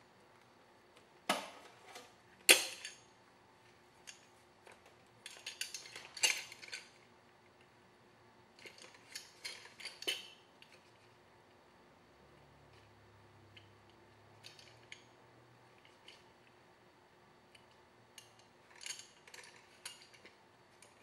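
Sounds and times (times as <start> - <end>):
small tools clicking and clattering: 1.9 - 3.1, 4.0 - 7.1, 8.6 - 11.0, 13.5 - 15.2, 17.5 - 21.0.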